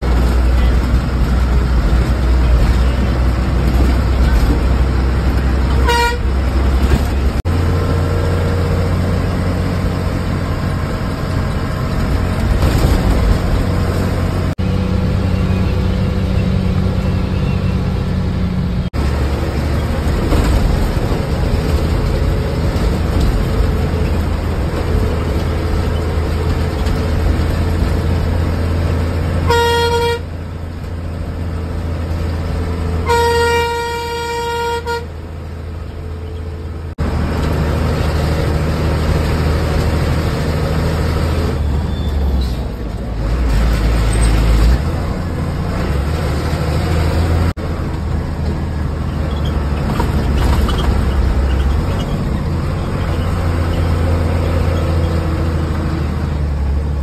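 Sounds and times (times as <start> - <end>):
bus engine running: 0.0 - 57.0
bus horn: 5.5 - 7.2, 29.2 - 30.7, 32.9 - 35.4.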